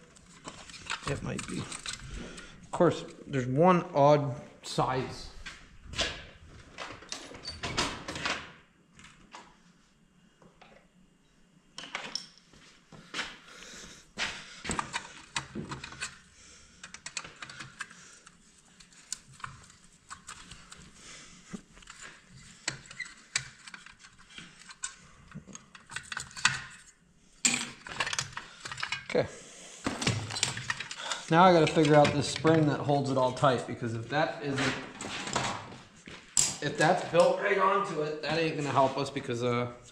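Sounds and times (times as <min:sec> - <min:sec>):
clicks and clinks of small parts: 0:21.8 - 0:29.1.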